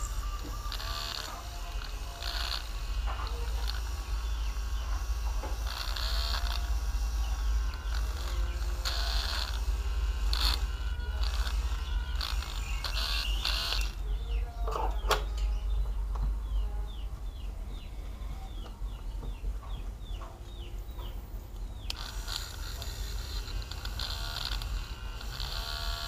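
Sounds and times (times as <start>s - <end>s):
smartphone scraping and rubbing: 0.0s - 14.0s, 21.9s - 26.0s
low hum: 0.0s - 26.0s.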